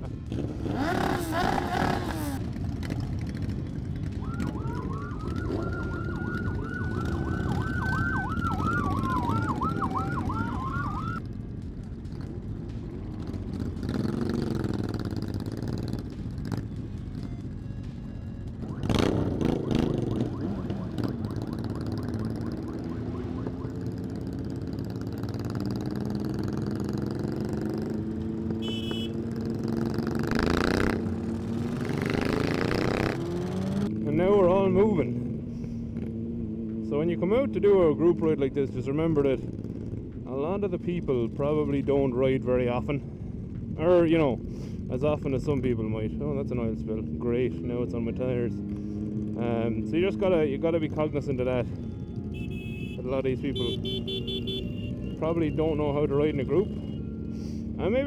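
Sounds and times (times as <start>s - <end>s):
motorcycle engines revving: 0.0s - 58.0s
siren wailing and yelping: 4.2s - 11.2s, 18.6s - 24.2s.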